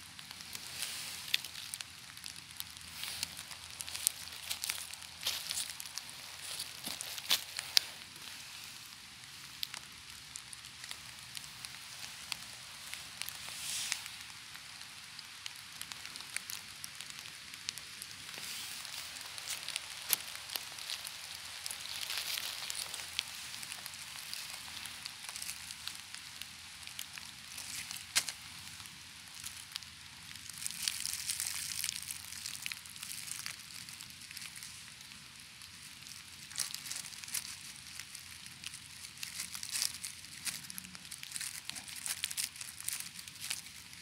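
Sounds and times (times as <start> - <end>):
dry leaves rustling underfoot: 0.0 - 44.0
twigs snapping: 0.2 - 44.0.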